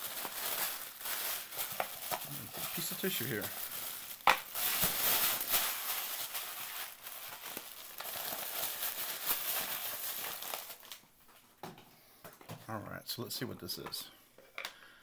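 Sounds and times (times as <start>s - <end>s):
tissue paper crinkling: 0.0s - 11.0s.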